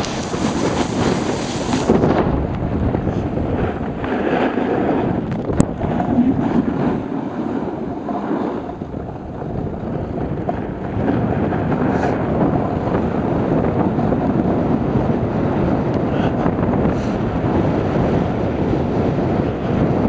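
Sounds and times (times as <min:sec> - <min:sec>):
skis scraping over snow: 0:00.0 - 0:02.2, 0:03.1 - 0:05.1, 0:05.9 - 0:08.8, 0:09.8 - 0:12.6
wind rushing over microphone: 0:00.0 - 0:20.0.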